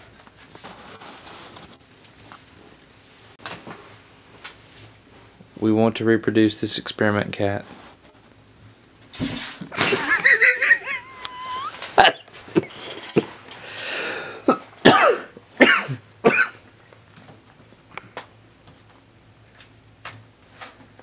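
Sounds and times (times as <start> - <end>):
people laughing under breath: 9.7 - 14.4
people coughing: 9.8 - 13.4, 14.3 - 16.6.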